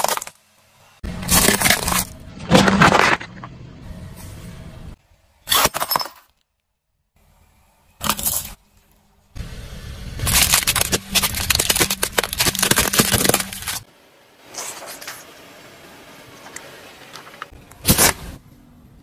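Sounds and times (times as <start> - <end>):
tyre crunching dry pasta: 1.1 - 3.3, 10.2 - 13.9
tyre crackling over crystals: 10.2 - 13.9.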